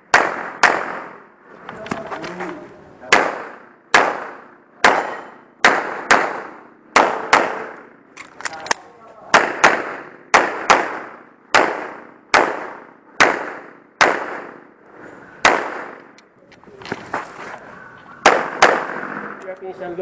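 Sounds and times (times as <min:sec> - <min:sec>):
pistol shots echoing: 0:00.1 - 0:01.2, 0:03.1 - 0:07.9, 0:08.6 - 0:14.7, 0:15.4 - 0:16.2, 0:18.2 - 0:19.2.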